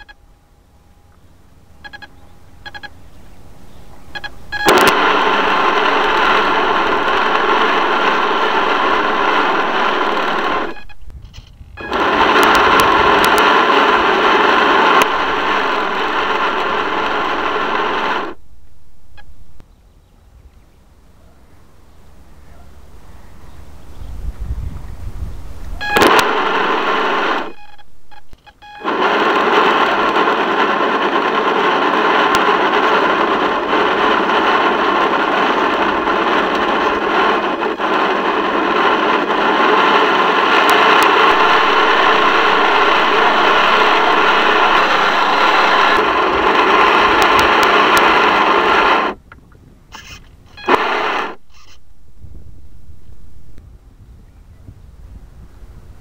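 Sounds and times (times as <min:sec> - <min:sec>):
small boat motor running: 0:00.7 - 0:11.0, 0:11.8 - 0:18.4, 0:28.6 - 0:49.2.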